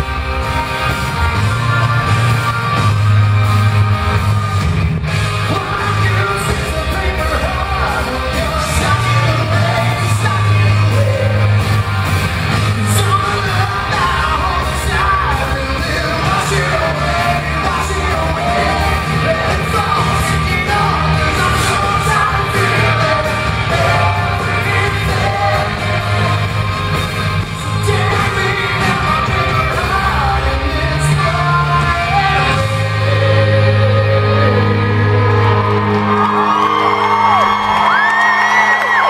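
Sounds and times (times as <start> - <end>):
live rock band playing: 0.0 - 39.0
man singing: 5.4 - 35.6
crowd yelling and whooping: 33.2 - 39.0.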